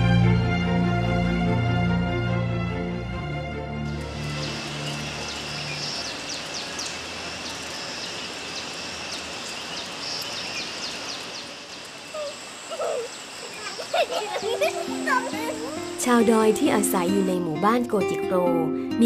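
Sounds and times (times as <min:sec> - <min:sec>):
high insect drone: 0:03.9 - 0:17.9
child calling out: 0:14.6 - 0:16.0.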